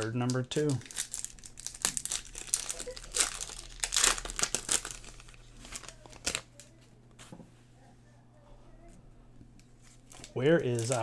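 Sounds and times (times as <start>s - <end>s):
foil wrapper crinkling and tearing: 0.0s - 6.7s, 9.8s - 11.0s.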